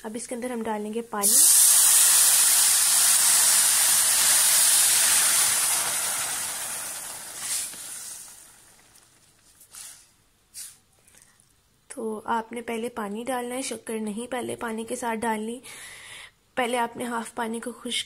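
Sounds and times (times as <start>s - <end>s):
water sizzling in hot pan: 1.2s - 9.2s.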